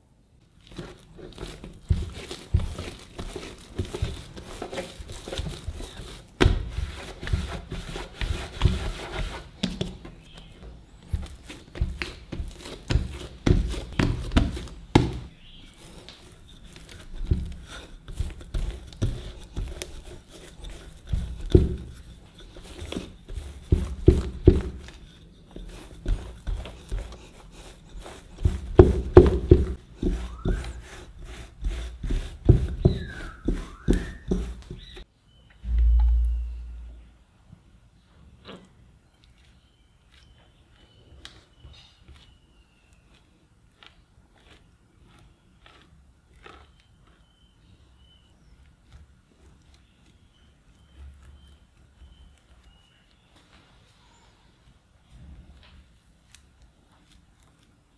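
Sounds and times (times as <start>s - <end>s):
hands kneading dough on wood: 0.4s - 35.1s, 54.6s - 57.9s
rolling pin rolling on wood: 0.6s - 35.0s.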